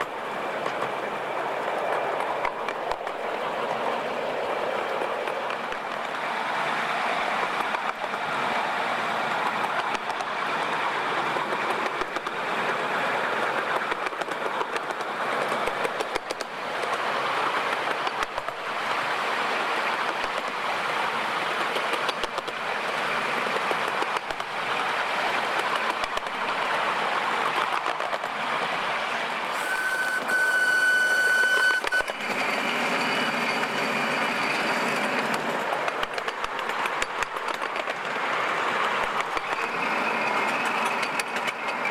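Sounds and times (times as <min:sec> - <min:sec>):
steam locomotive running: 0:00.0 - 0:41.9
train whistle: 0:29.5 - 0:32.2.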